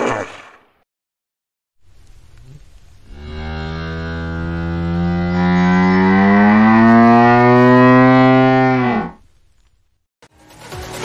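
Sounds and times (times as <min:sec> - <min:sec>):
hippopotamus bellowing: 0:02.4 - 0:09.2.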